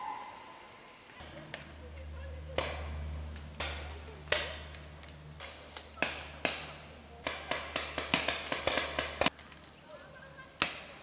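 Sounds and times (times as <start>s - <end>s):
paintball markers firing: 5.4s - 9.7s.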